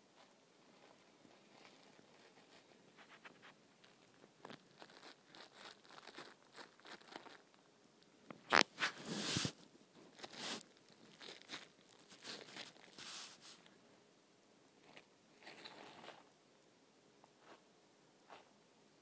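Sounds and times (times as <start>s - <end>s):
scratching on fabric duvet: 0.8s - 3.6s, 8.5s - 9.6s, 10.2s - 10.6s, 11.3s - 13.7s.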